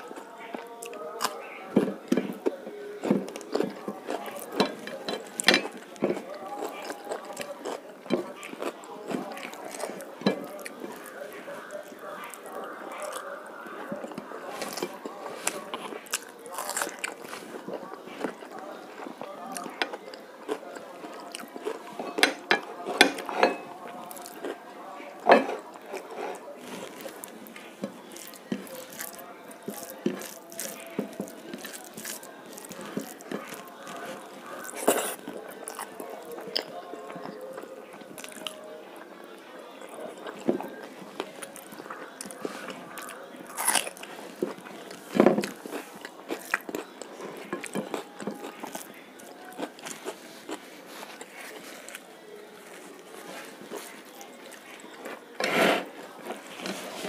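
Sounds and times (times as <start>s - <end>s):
fingers mixing wet rice: 0.0s - 38.7s.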